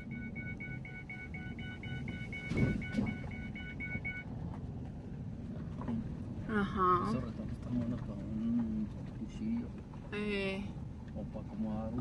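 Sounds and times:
vehicle warning chime beeping: 0.0 - 4.3
vehicle driving rumble: 0.0 - 12.0.

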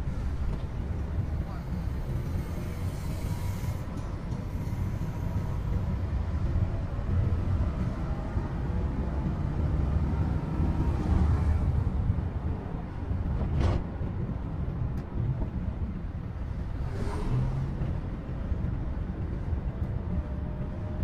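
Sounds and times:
van engine and tyres rumbling: 0.0 - 21.0.

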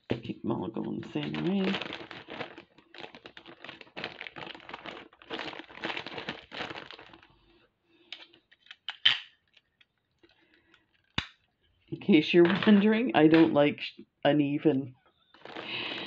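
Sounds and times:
plastic bag crinkling: 0.1 - 11.2, 15.2 - 16.0.

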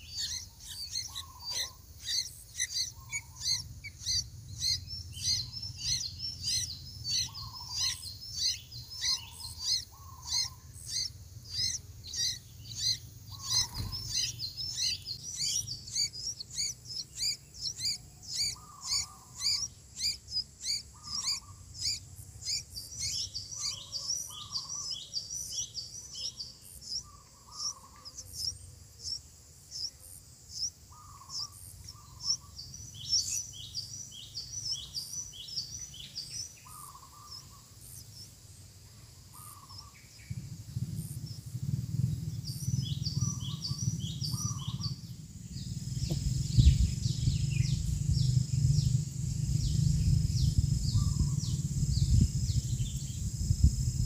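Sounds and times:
nestlings chirping: 0.0 - 29.9, 30.5 - 38.4, 42.1 - 54.0
thump: 46.0 - 46.3.

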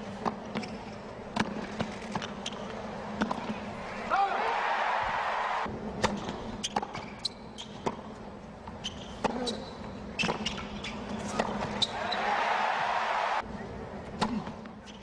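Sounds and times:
racquets striking tennis ball: 0.2 - 3.7
crowd noise: 2.7 - 5.7, 11.3 - 14.2
shoe squeaks: 6.6 - 7.8, 8.7 - 11.1, 11.7 - 12.2.

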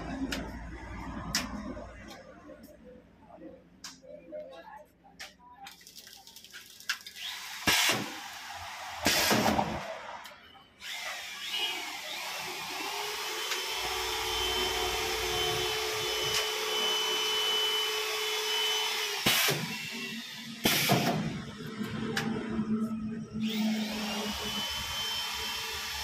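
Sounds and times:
loud machine noise bursts: 7.2 - 9.9, 10.8 - 21.6, 23.4 - 26.0
machine motor whirring: 10.8 - 26.0.

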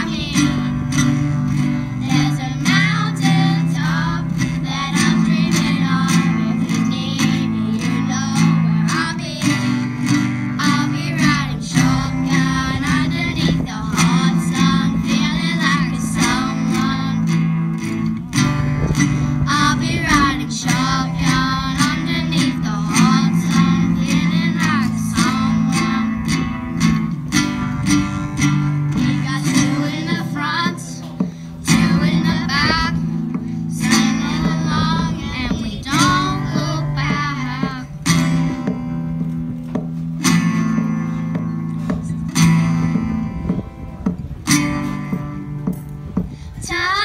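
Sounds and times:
children singing: 0.0 - 17.5, 19.5 - 26.4, 28.9 - 31.0, 33.7 - 37.9
strummed acoustic guitars: 0.0 - 47.0.

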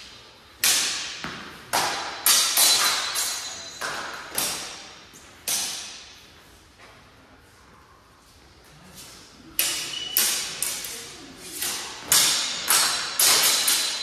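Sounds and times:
swords clashing: 0.6 - 6.2, 9.6 - 14.0.

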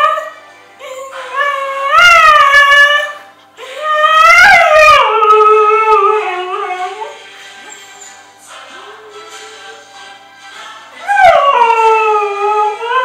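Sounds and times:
husky howling: 1.1 - 3.2, 3.8 - 7.2, 11.0 - 13.0.

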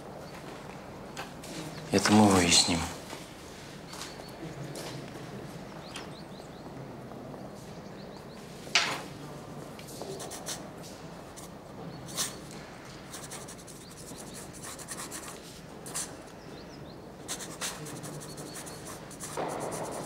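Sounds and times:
pencil scratching on paper: 10.2 - 10.6, 13.1 - 16.1, 17.3 - 20.0.

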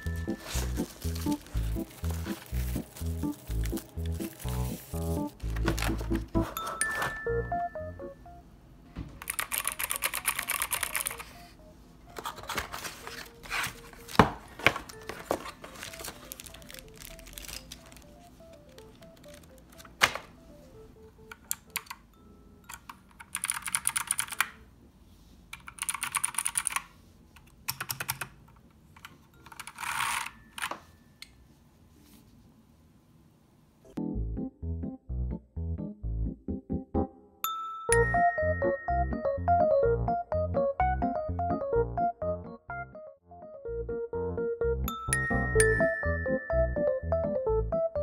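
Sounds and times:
soft background music: 0.0 - 25.2, 33.9 - 48.0
mechanical keyboard keys clacking: 9.2 - 11.4, 14.8 - 20.4, 21.2 - 22.0, 22.6 - 24.6, 25.5 - 30.7.

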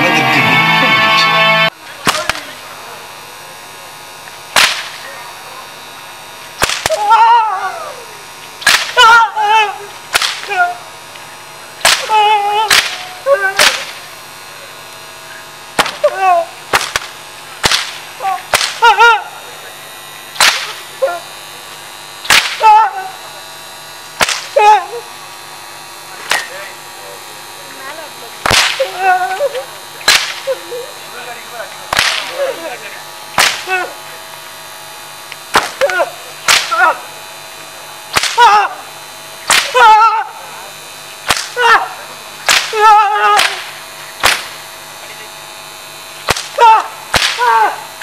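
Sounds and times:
whip cracking: 2.0 - 2.5, 4.5 - 5.1, 6.6 - 7.1, 8.6 - 9.0, 10.1 - 10.7, 11.8 - 14.0, 15.8 - 16.1, 16.7 - 18.8, 20.4 - 20.8, 22.2 - 22.7, 24.2 - 24.5, 28.4 - 29.0, 30.0 - 30.5, 31.9 - 32.4, 33.4 - 33.8, 35.5 - 37.0, 38.1 - 38.6, 39.5 - 39.8, 41.2 - 41.6, 42.4 - 44.6, 46.2 - 47.6
man crying out in pain: 6.9 - 8.1, 9.0 - 10.8, 12.0 - 13.6, 16.0 - 16.6, 18.2 - 19.4, 22.6 - 23.2, 24.5 - 25.1, 28.8 - 29.7, 33.6 - 34.0, 35.8 - 37.0, 38.4 - 38.9, 39.7 - 40.4, 41.6 - 42.0, 42.7 - 43.7, 46.5 - 47.9.

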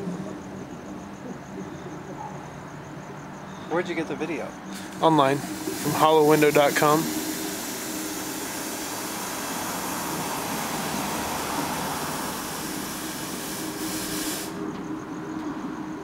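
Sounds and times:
steady hiss: 3.4 - 15.3.

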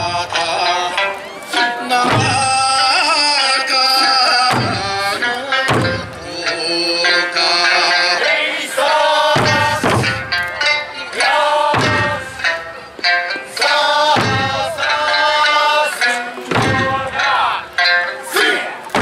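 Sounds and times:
large barrel drums beating: 0.0 - 6.6, 9.3 - 10.8, 11.7 - 17.9
sung folk melody: 0.0 - 19.0.

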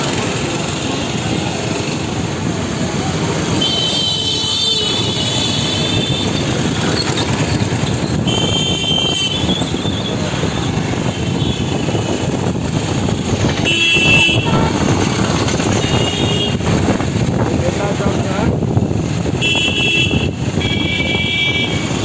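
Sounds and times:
street traffic rumble: 0.0 - 22.0
vehicle horns: 3.4 - 12.4, 13.3 - 16.8, 19.3 - 22.0.

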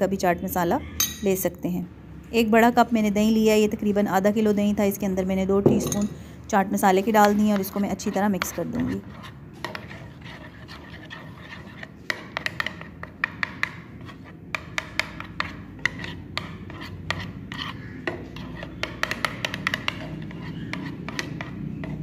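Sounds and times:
spoon scraping yogurt: 6.8 - 22.0.

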